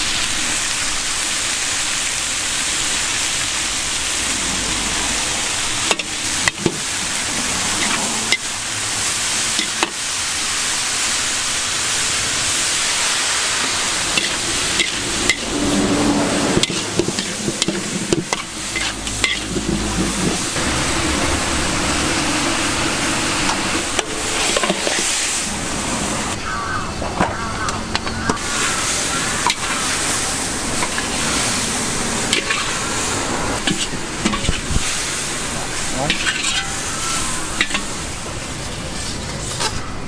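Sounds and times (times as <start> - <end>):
vegetables sizzling in a wok: 0.0 - 40.0
spatula scraping a wok: 4.3 - 10.0, 13.6 - 20.6, 23.4 - 25.5, 28.1 - 38.1.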